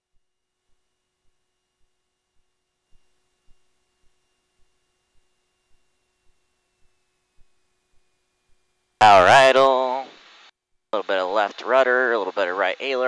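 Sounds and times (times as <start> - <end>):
faint electrical hum: 0.6 - 13.0
faint regular ticks: 2.9 - 8.8.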